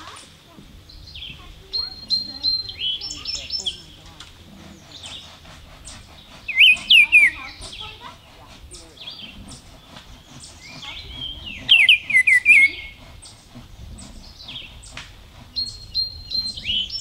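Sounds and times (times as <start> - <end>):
high bird chirps: 0.9 - 4.0, 4.8 - 17.0
bird whistled song phrase: 4.9 - 8.0, 10.4 - 13.4, 15.6 - 17.0.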